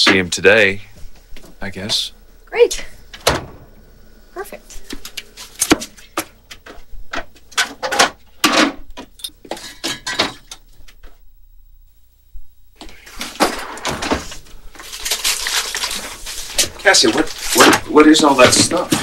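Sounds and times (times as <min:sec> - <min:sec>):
dishes and containers clattering: 0:05.7 - 0:10.6.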